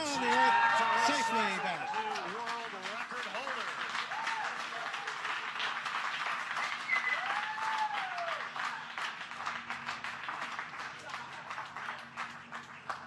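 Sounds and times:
person cheering: 0.0 - 2.3, 7.1 - 8.4
crowd applauding: 0.0 - 13.0.

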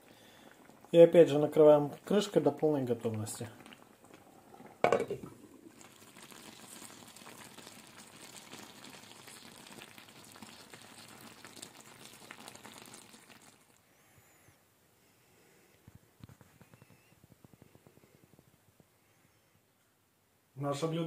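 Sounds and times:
food bubbling in a skillet: 0.0 - 13.9.

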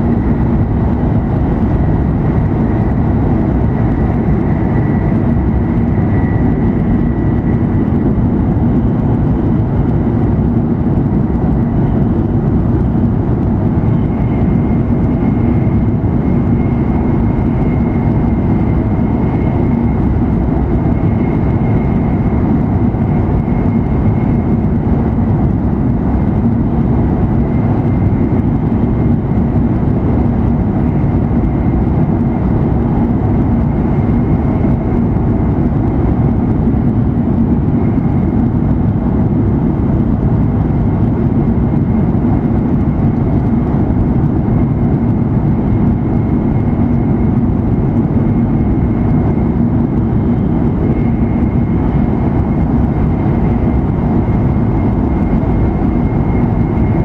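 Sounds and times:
train interior rumble: 0.0 - 57.0.

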